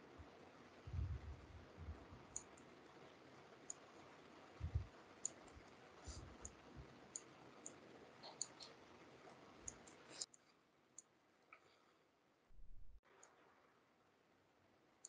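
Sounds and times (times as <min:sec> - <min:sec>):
low hiss: 0:00.0 - 0:10.3
soft low thumps: 0:00.9 - 0:02.2, 0:04.6 - 0:04.9
computer mouse clicks: 0:02.3 - 0:02.7, 0:03.6 - 0:03.8, 0:04.6 - 0:11.1.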